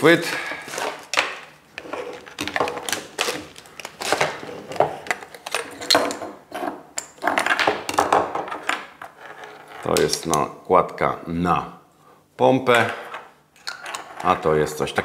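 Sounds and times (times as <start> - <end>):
plastic parts clicking and scraping: 0.7 - 10.4.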